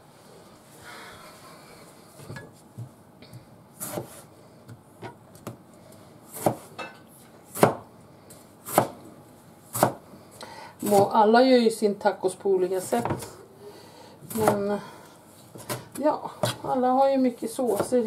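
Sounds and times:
knife chopping on wooden board: 3.8s - 5.6s, 6.3s - 6.8s, 7.5s - 7.8s, 8.6s - 9.0s, 9.7s - 10.0s, 15.6s - 16.8s, 17.7s - 18.0s.

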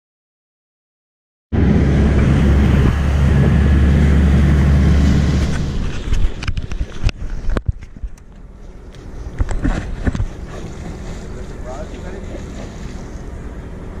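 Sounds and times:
wind buffeting microphone: 1.6s - 8.2s
boat engine drone: 1.6s - 14.0s
water sounds: 1.6s - 14.0s
sharp clicks and knocks: 5.4s - 10.3s.

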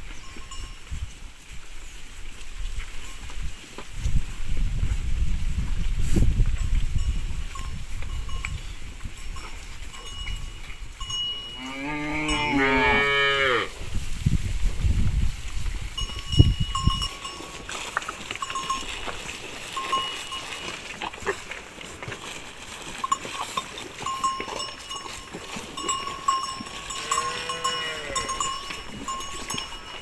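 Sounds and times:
cattle bells clinking: 0.0s - 3.8s, 6.2s - 13.7s, 15.2s - 30.0s
cow mooing: 11.6s - 13.8s, 26.9s - 28.5s.

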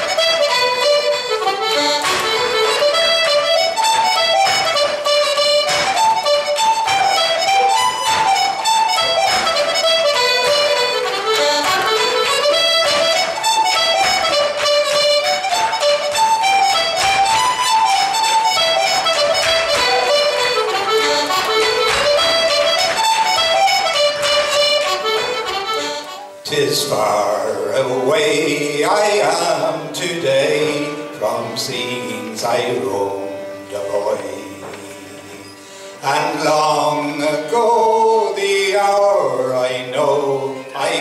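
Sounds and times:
accordions and fiddles playing dance tune: 0.0s - 41.0s.

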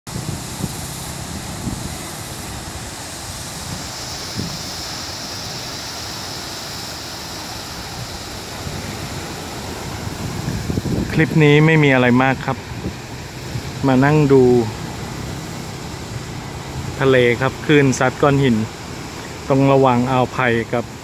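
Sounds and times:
wind thumps on microphone: 0.1s - 5.0s, 7.8s - 11.4s, 12.6s - 14.2s
waves breaking on rocky shore: 0.1s - 21.0s.

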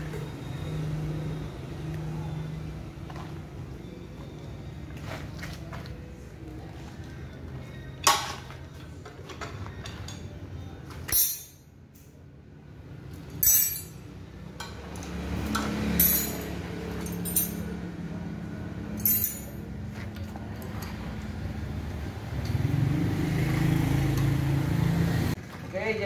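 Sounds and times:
metal hand tools clinking: 11.1s - 11.6s, 13.3s - 14.1s, 15.0s - 17.8s, 19.0s - 19.7s.

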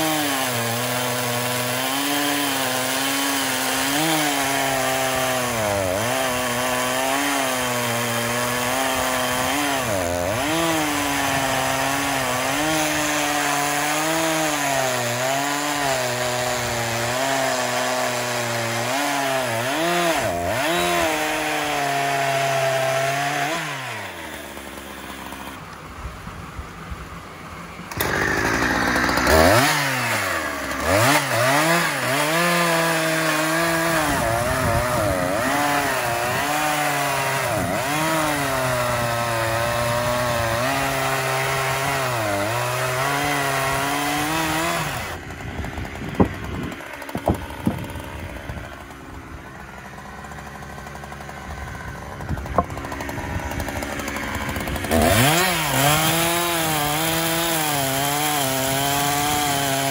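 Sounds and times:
chainsaw cutting wood: 0.0s - 26.2s, 27.8s - 59.9s
sharp knocks: 52.4s - 53.0s.

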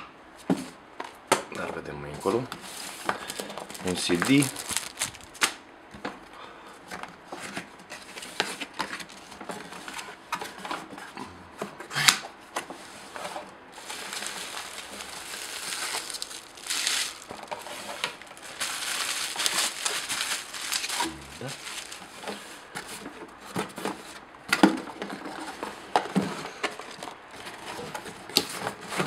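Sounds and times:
cardboard box scraping and rustling: 2.6s - 5.3s, 11.9s - 24.2s
bubble wrap crinkling: 2.6s - 5.6s, 8.1s - 10.0s, 13.1s - 22.7s.

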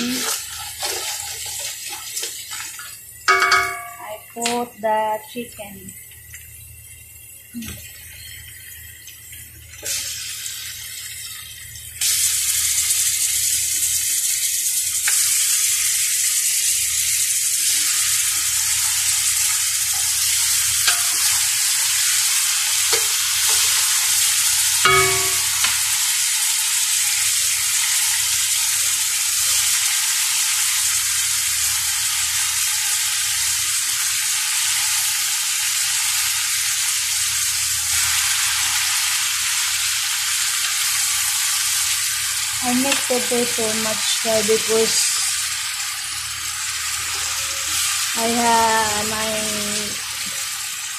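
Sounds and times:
chicken sizzling in hot oil: 0.0s - 50.9s
wooden spoon knocking on pot: 3.3s - 4.0s, 24.9s - 25.8s.

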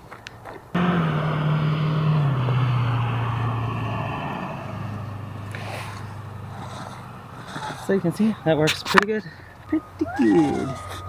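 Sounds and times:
vehicle engine running: 0.8s - 8.6s.

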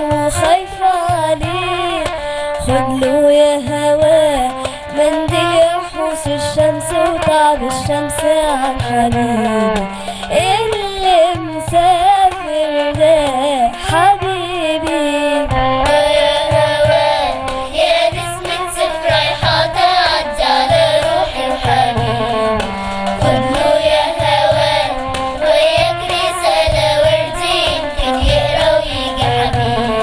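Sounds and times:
instrumental accompaniment: 0.0s - 30.0s
steady drum beat: 0.0s - 30.0s
children's choir singing: 15.8s - 30.0s.

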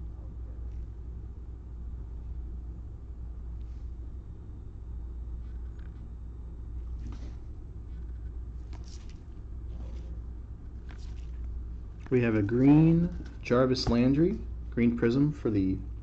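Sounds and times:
low background hum: 0.0s - 16.0s
trading cards scraping and clicking: 7.0s - 14.0s.

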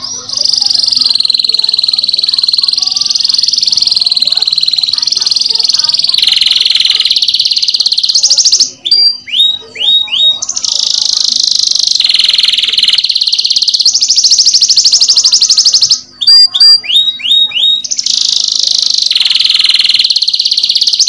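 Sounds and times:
canary singing trills: 0.0s - 21.0s.

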